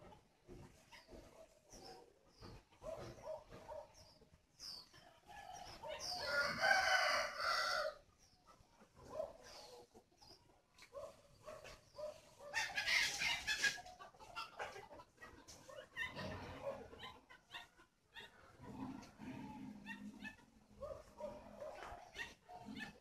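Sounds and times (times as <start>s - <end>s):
small birds chirping: 0.0s - 14.5s
rooster crowing: 5.5s - 8.0s.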